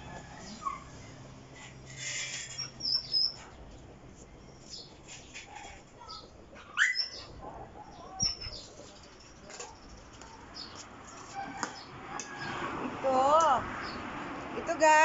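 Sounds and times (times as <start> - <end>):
bird chirps: 2.1 - 3.4, 6.0 - 10.0.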